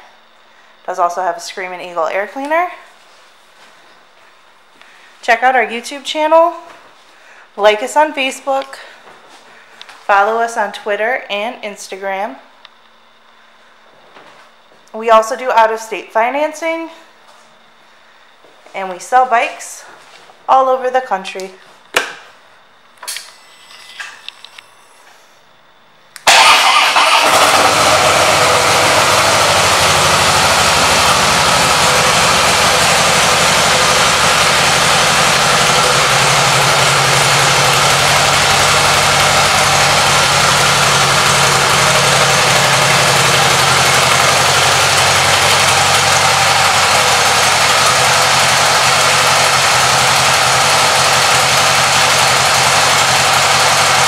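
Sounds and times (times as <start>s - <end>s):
motorcycle engine starting and idling: 26.2s - 54.0s.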